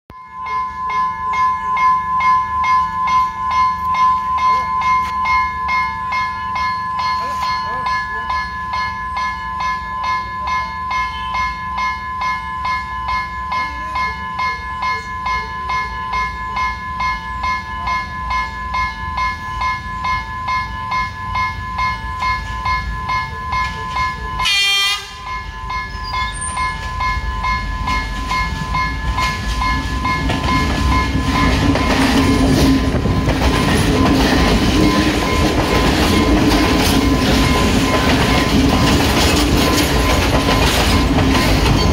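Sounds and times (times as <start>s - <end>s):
level-crossing warning bell ringing: 0.1s - 41.9s
train engine and wheels on rails: 0.1s - 41.9s
train horn blast: 23.6s - 25.3s.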